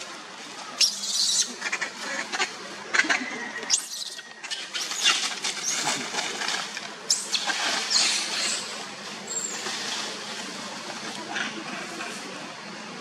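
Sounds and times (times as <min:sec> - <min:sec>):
dry leaves rustling and crunching: 0:04.4 - 0:11.3.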